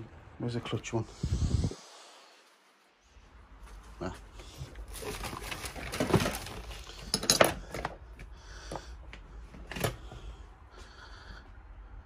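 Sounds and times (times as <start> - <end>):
rustling of rags and parts: 2.4 - 10.5.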